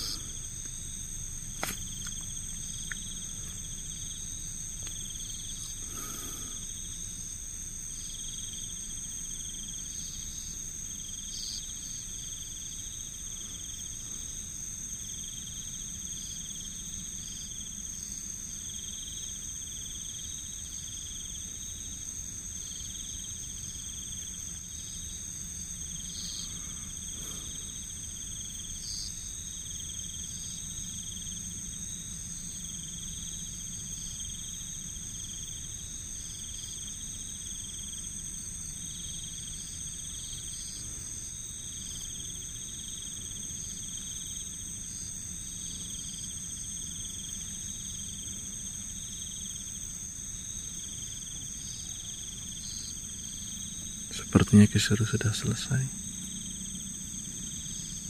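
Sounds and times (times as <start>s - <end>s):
insects shrilling: 0.0s - 8.7s, 51.0s - 58.0s
short insect chirps: 0.0s - 22.0s
insect trill: 0.0s - 58.0s.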